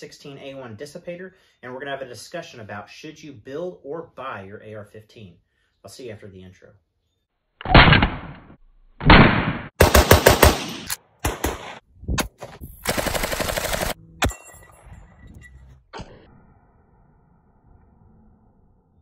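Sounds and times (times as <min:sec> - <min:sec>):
gunshots: 0:07.6 - 0:14.4.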